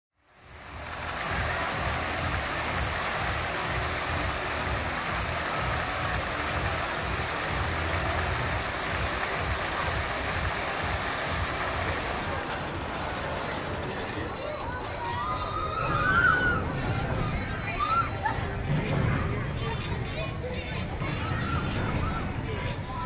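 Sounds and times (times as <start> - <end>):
fountain water splashing: 0.2 - 12.6.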